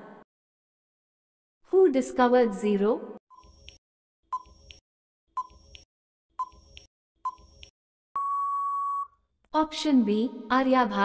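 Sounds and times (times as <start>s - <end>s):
long steady beep: 8.2s - 9.2s.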